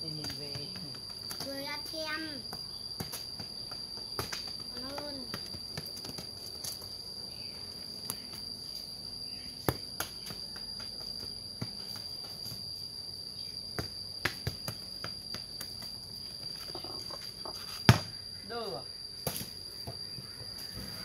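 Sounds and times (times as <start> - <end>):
high-pitched insect drone: 0.0 - 21.0
football kicked with bare feet: 2.5 - 6.6, 9.6 - 12.6, 13.7 - 16.0, 17.8 - 18.2.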